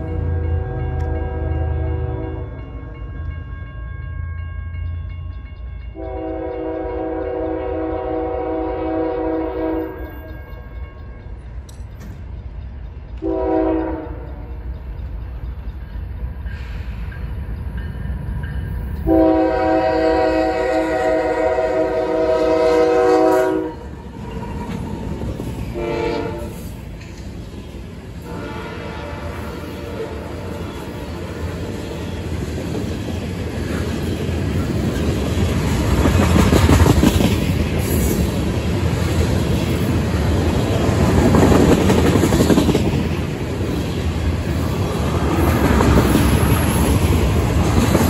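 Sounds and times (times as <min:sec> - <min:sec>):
locomotive air horn blasts: 0:00.2 - 0:02.6, 0:06.0 - 0:10.2, 0:13.2 - 0:14.5, 0:19.1 - 0:23.9, 0:25.7 - 0:26.7, 0:28.2 - 0:31.1
locomotive rumbling: 0:04.3 - 0:48.0.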